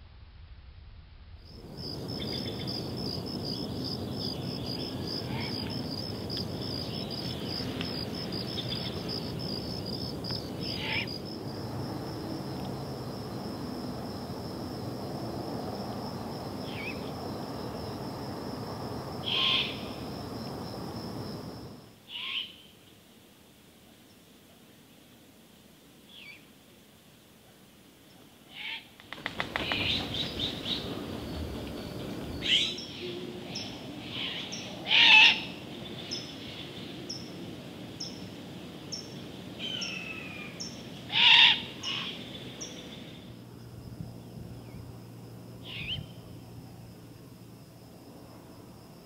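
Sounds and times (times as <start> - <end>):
owls screeching: 10.7 - 11.1, 19.2 - 19.8, 22.1 - 22.6, 34.1 - 35.5, 41.1 - 42.2.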